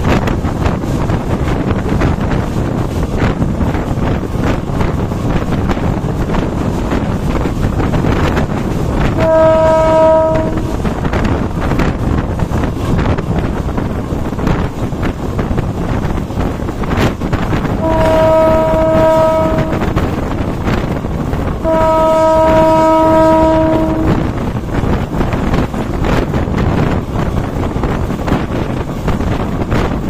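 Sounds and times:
train running noise: 0.0 - 30.0
wind on microphone: 0.0 - 30.0
train horn blasts: 8.9 - 11.2, 17.6 - 24.6.

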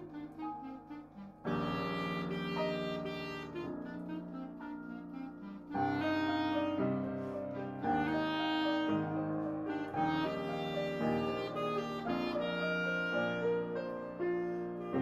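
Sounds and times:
clarinet melody: 0.0 - 15.0
piano accompaniment: 0.0 - 15.0.

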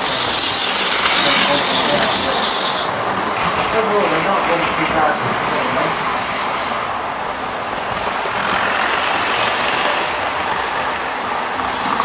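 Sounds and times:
model train motor whirring: 0.0 - 2.9.

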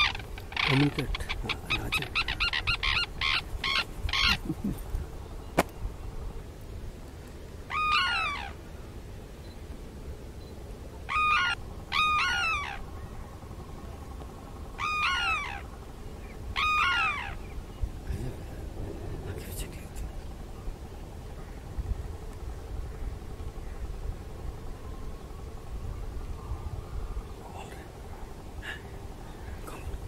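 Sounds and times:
cranes trumpeting: 0.0 - 30.0.

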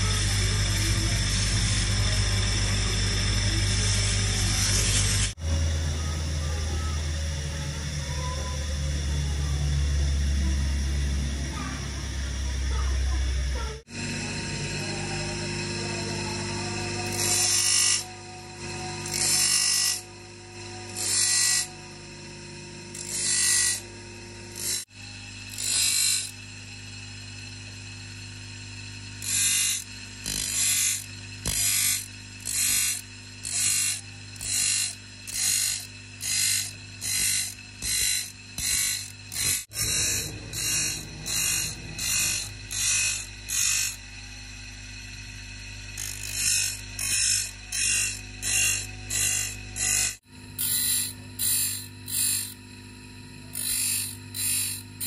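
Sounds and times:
steady low hum: 0.0 - 55.0
hand tool rasping on saw blade: 15.9 - 21.8, 22.9 - 23.9, 24.5 - 24.9, 25.5 - 26.4, 29.2 - 44.0, 45.9 - 52.6, 53.4 - 55.0.

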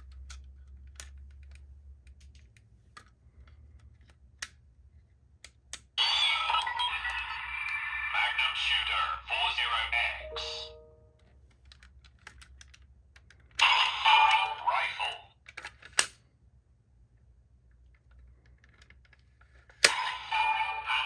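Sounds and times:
toy gun plastic clicks: 0.0 - 3.2, 15.4 - 16.2
electronic toy sound effects: 6.0 - 11.0, 13.6 - 15.2, 19.9 - 21.0
sharp plastic snap: 15.5 - 16.2.

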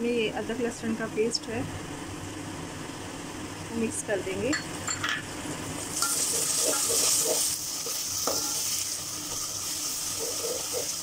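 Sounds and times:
onions sizzling in hot oil: 5.3 - 11.0
metal spoon stirring in pot: 6.0 - 11.0.

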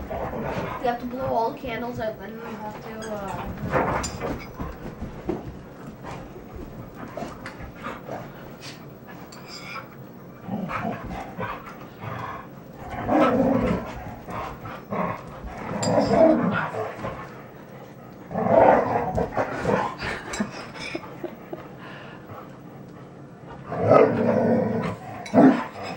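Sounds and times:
dogs panting: 0.0 - 15.8, 19.1 - 23.7
dogs scuffling: 0.0 - 22.3
dogs growling: 0.0 - 25.9.

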